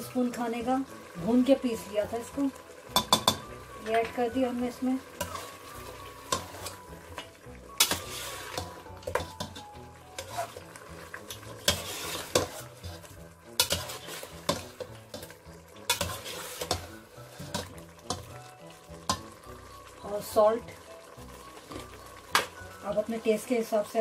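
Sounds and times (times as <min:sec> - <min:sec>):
food sizzling: 0:00.0 - 0:24.0
ladle scraping metal pot: 0:05.1 - 0:19.4.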